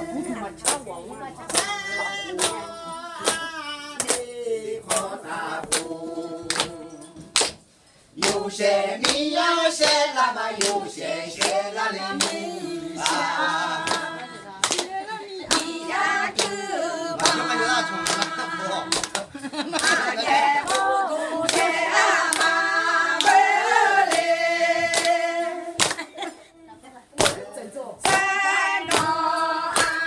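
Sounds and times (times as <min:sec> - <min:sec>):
hand claps: 0:00.6 - 0:00.8, 0:01.5 - 0:05.9, 0:06.5 - 0:12.4, 0:13.0 - 0:16.6, 0:17.2 - 0:20.9, 0:21.5 - 0:23.5, 0:24.1 - 0:24.3, 0:24.9 - 0:25.2, 0:25.8 - 0:26.2, 0:27.2 - 0:30.0
group of voices singing: 0:01.4 - 0:26.4, 0:27.2 - 0:30.0.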